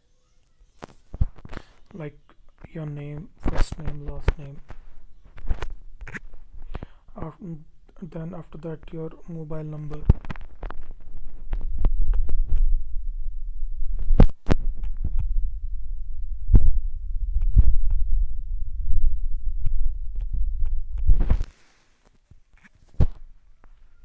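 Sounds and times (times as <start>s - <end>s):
scattered clicks and thumps: 0.8s - 12.8s, 14.0s - 15.4s, 16.5s - 18.1s, 18.9s - 21.5s.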